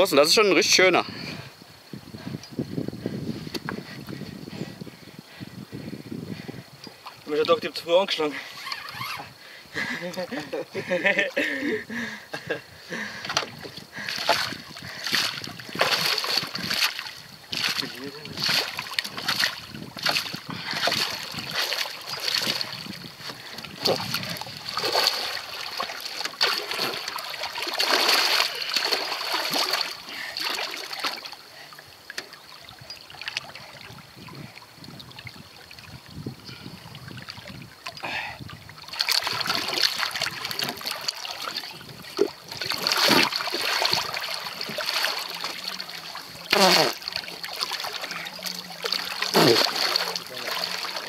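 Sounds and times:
fish thrashing and splashing water: 0:13.1 - 0:34.2, 0:37.0 - 0:51.0.

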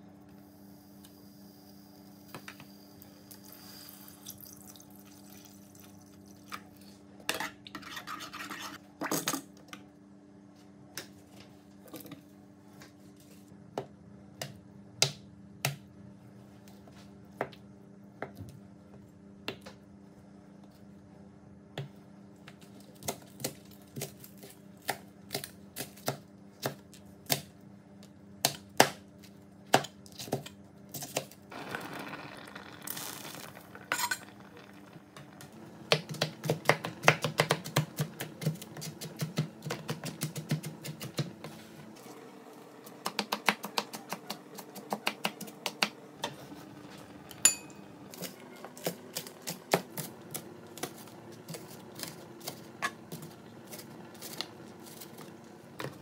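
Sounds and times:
knife chopping on plastic board: 0:35.9 - 0:41.5, 0:43.0 - 0:46.0.

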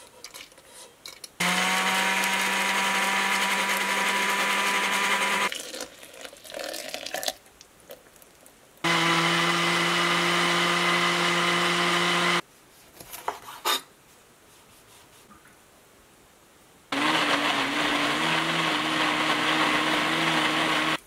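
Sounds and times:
countertop blender running: 0:01.4 - 0:05.5, 0:08.9 - 0:12.4, 0:17.0 - 0:21.0.

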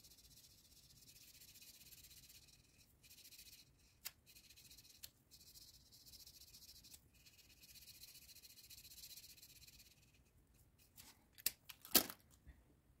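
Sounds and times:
marker scratching on paper: 0:00.0 - 0:10.3.

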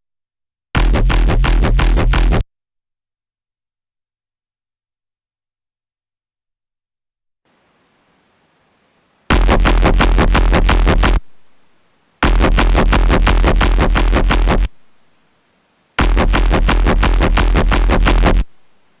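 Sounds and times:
distorted pulsing synth bass: 0:00.8 - 0:02.4, 0:09.3 - 0:11.3, 0:12.2 - 0:14.7, 0:16.0 - 0:18.5.

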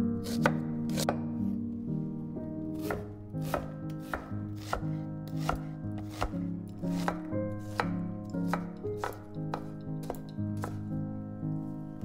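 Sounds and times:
soft background music: 0:00.0 - 0:12.0
knife chopping on wooden board: 0:00.3 - 0:01.2, 0:02.8 - 0:10.9.

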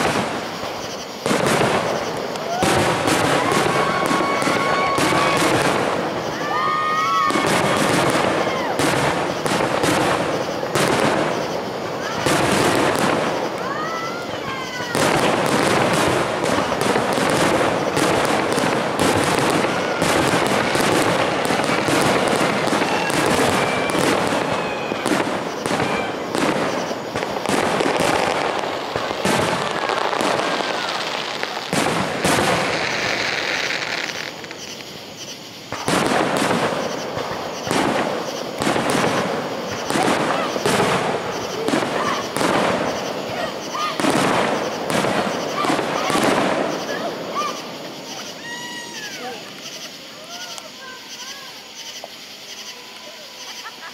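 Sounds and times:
fireworks bursting and crackling: 0:00.0 - 0:53.9.

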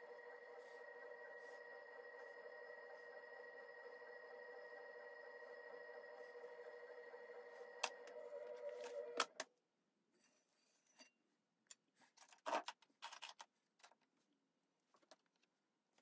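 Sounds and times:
potter's wheel motor whining: 0:00.0 - 0:09.4
faint clicks and scrapes: 0:11.7 - 0:14.2.

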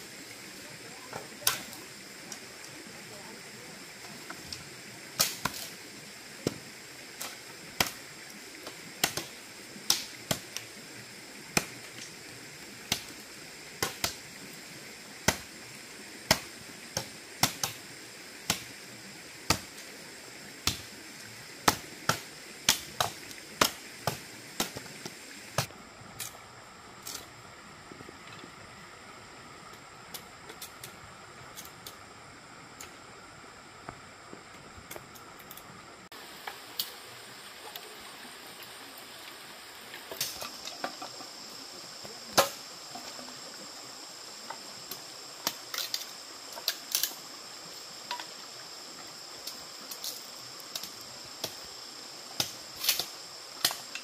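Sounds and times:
high-pitched hiss: 0:00.0 - 0:54.0.

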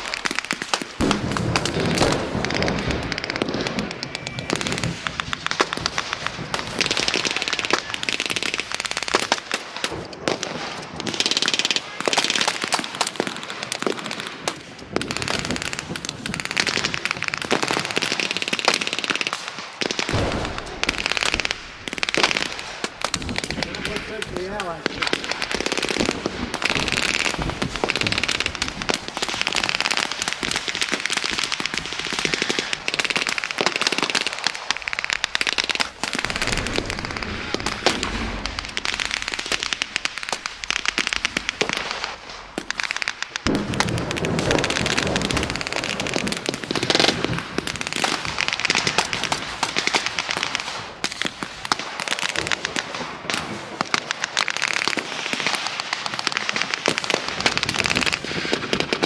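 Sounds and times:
rifles firing blanks: 0:00.5 - 0:08.4.

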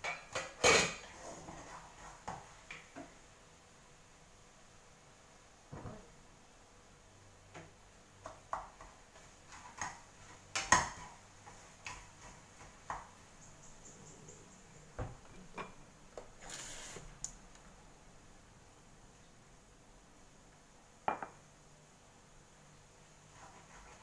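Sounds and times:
kitchenware clinking and knocking: 0:00.0 - 0:01.1, 0:15.0 - 0:15.8, 0:21.1 - 0:21.4.

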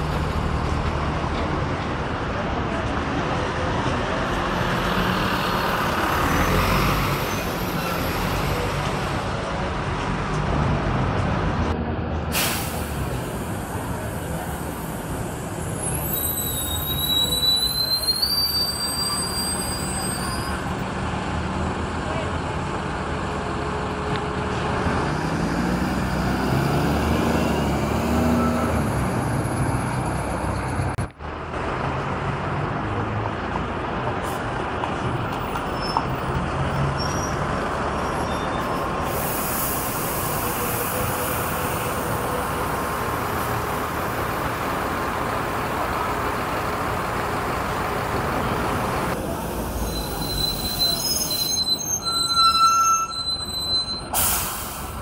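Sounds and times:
bus diesel engines running: 0:00.0 - 0:55.0
street traffic: 0:00.0 - 0:55.0
bus brakes squealing: 0:04.6 - 0:08.9, 0:12.3 - 0:20.8, 0:25.6 - 0:30.9, 0:35.4 - 0:44.6, 0:45.7 - 0:55.0.

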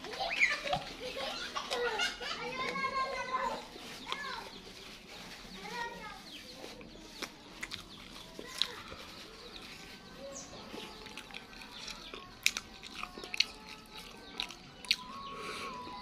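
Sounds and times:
person eating rice by hand: 0:06.6 - 0:15.9.

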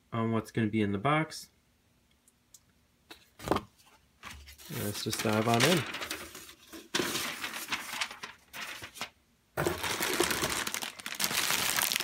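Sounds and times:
plastic bag and paper rustling: 0:04.2 - 0:12.0.

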